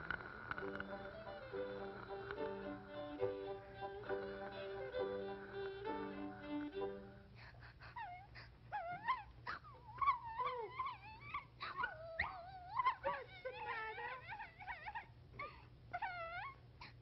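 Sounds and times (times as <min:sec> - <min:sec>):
violin phrase: 0:00.0 - 0:07.2.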